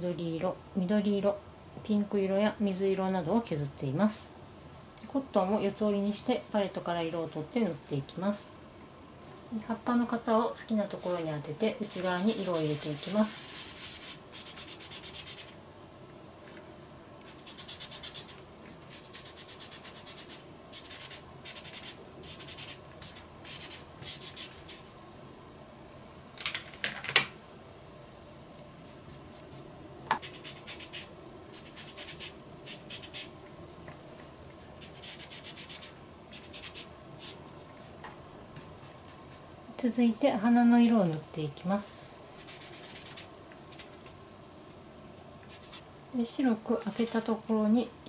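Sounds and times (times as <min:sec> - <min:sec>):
pad scrubbing powder on paper: 0:11.8 - 0:15.5.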